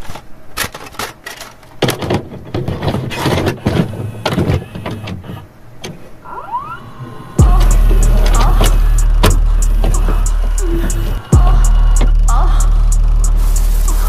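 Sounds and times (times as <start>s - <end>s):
short rising whine: 6.2s - 14.0s
static crackling bursts and clicks: 7.4s - 14.0s.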